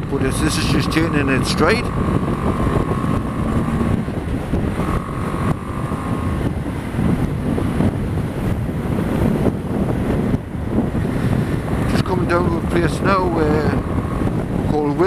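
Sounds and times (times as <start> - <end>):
steady high whine: 0.0 - 6.6
motorcycle engine running: 0.0 - 15.0
wind rushing over microphone: 0.0 - 15.0.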